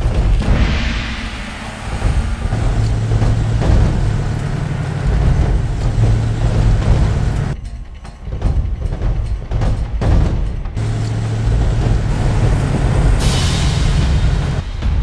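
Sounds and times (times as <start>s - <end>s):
cars engine and tyre noise: 0.0s - 15.0s
car passing whoosh: 0.4s - 7.5s.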